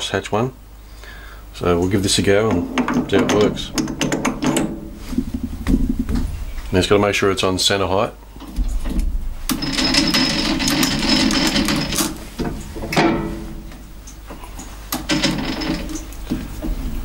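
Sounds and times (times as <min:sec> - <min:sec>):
metal tool holder rattling and scraping: 0:02.4 - 0:05.9, 0:09.5 - 0:13.6, 0:15.0 - 0:16.5
metal parts clattering: 0:09.5 - 0:12.2, 0:15.0 - 0:16.2.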